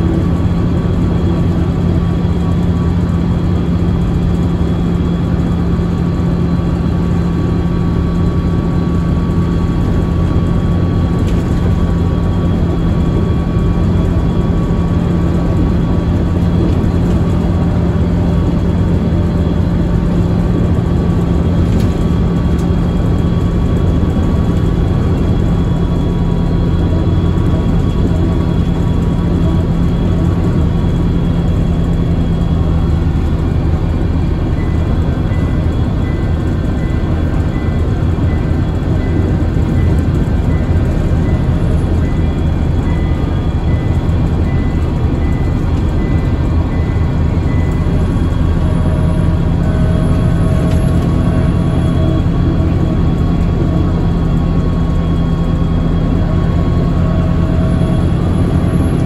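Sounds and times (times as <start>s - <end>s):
bus diesel engine humming: 0.0s - 59.0s
road and body noise: 0.0s - 59.0s.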